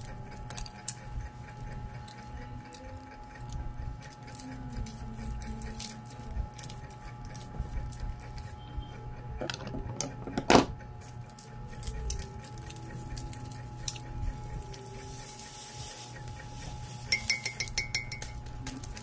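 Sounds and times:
biting and chewing bread: 0.0s - 8.6s, 10.8s - 17.1s
steady background hum: 0.0s - 19.0s.

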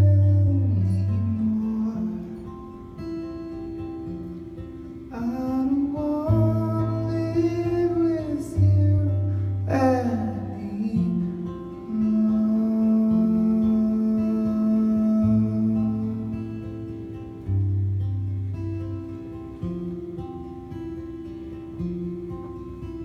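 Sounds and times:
man singing: 0.0s - 3.1s, 5.1s - 17.0s
acoustic guitar: 0.0s - 23.0s.

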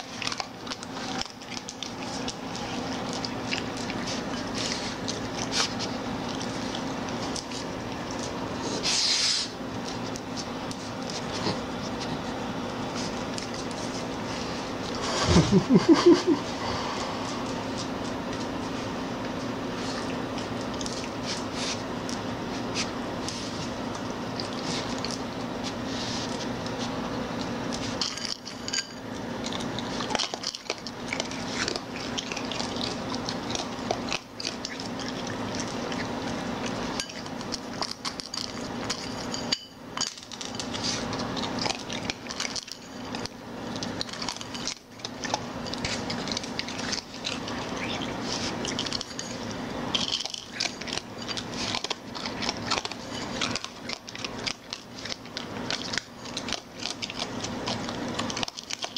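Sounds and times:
low steady hum: 0.0s - 58.9s
claws clicking and scraping: 29.4s - 58.9s.

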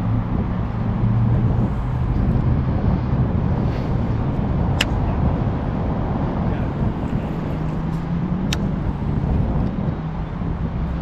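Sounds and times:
low rumble of urban traffic: 0.0s - 11.0s
wind on microphone: 0.0s - 11.0s
sharp clicks: 8.5s - 8.7s.

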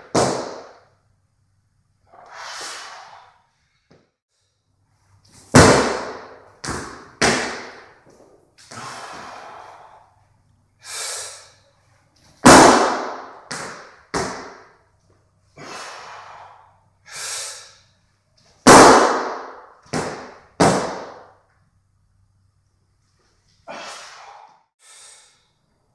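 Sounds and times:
heavy hissing breaths: 2.1s - 3.9s, 8.6s - 11.9s, 15.5s - 18.0s, 23.6s - 25.7s.

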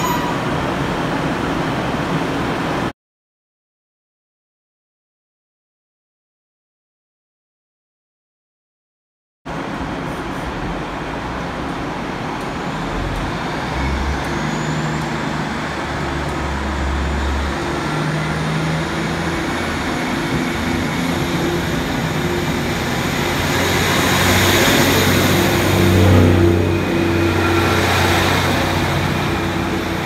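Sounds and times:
train diesel engines running: 0.0s - 2.9s, 9.5s - 30.0s.

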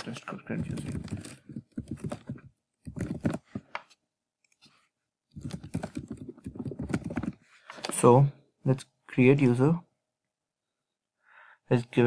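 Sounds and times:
computer keyboard typing: 0.5s - 3.7s, 5.3s - 7.4s.

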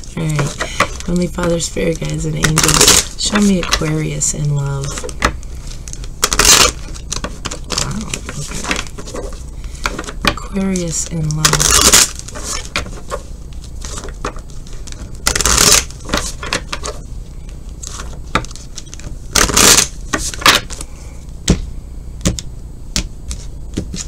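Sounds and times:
cards riffling: 10.8s - 17.0s, 17.8s - 20.9s
cards clicking and tapping: 22.2s - 24.0s.

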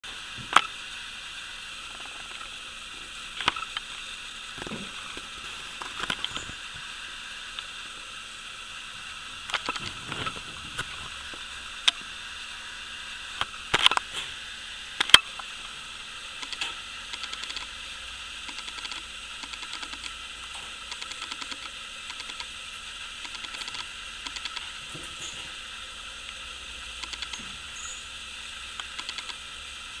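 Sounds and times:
steady hiss: 0.0s - 30.0s
faint rapid ticking: 16.4s - 17.8s, 18.4s - 20.2s, 20.8s - 24.8s, 26.2s - 27.4s, 28.7s - 29.4s.

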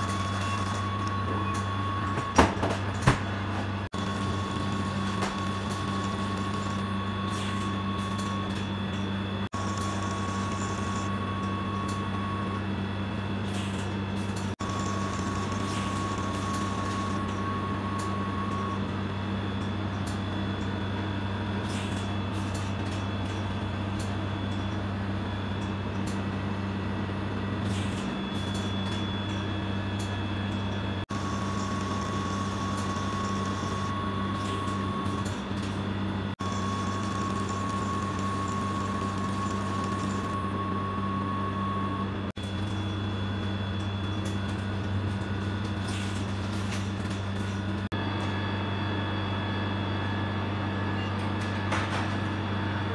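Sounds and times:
thin high whine: 0.0s - 26.1s, 27.1s - 52.9s
low machine hum: 0.0s - 52.9s.

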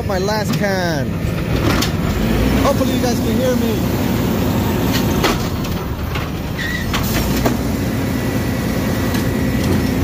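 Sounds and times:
garbage truck running: 0.0s - 10.0s
clanks from truck arm and can: 4.9s - 7.6s
short squeak: 6.6s - 6.9s.

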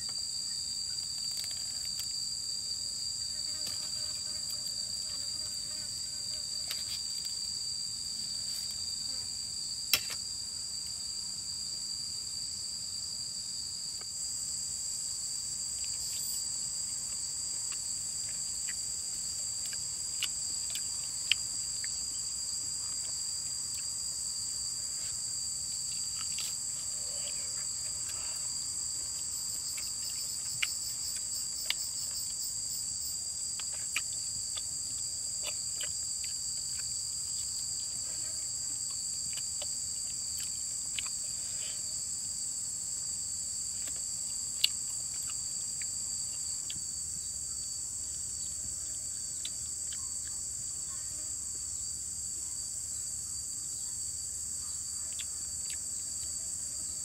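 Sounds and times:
high-pitched insect drone: 19.6s - 35.0s.

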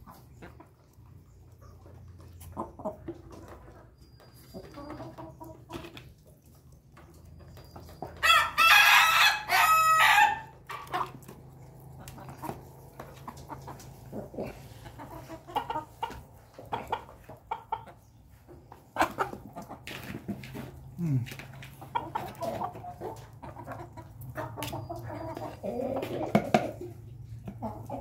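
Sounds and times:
chicken clucking: 0.0s - 28.0s
rooster crowing: 8.2s - 10.6s.

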